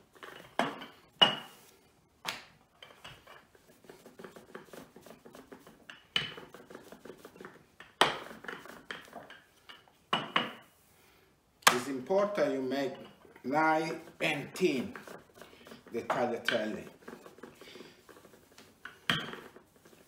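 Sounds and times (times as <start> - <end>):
rolling pin rumbling on dough: 2.8 - 9.5, 11.8 - 20.0.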